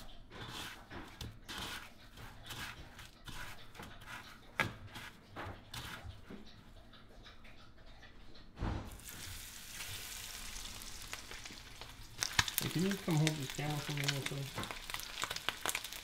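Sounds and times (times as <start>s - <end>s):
breadcrumbs rustling in a bowl: 0.4s - 6.0s, 9.0s - 16.0s.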